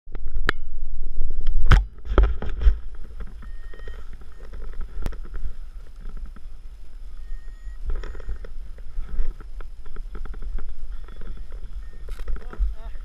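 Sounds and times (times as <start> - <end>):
rustling: 1.6 - 13.0.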